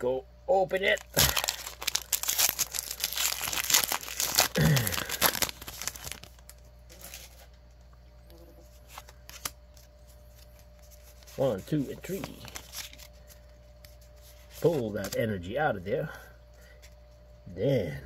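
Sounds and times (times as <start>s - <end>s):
foil wrapper tearing and crinkling: 0.9s - 7.4s
faint handling sounds: 5.2s - 15.5s.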